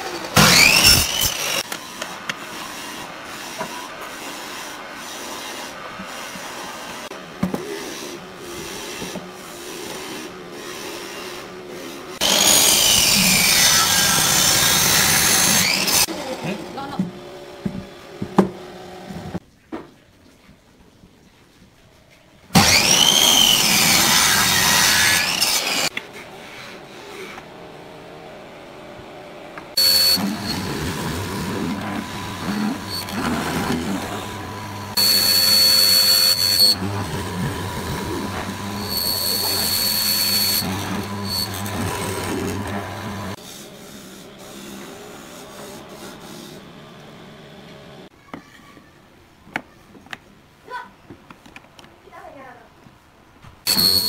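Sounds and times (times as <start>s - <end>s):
miter saw cutting wood: 0.0s - 4.5s, 9.8s - 16.8s, 22.6s - 25.9s, 29.8s - 46.8s, 53.7s - 54.0s
chisel plunging with whine: 0.4s - 1.6s, 29.8s - 43.4s, 53.7s - 54.0s
mortiser humming: 12.2s - 18.5s, 22.6s - 25.9s, 29.7s - 43.4s.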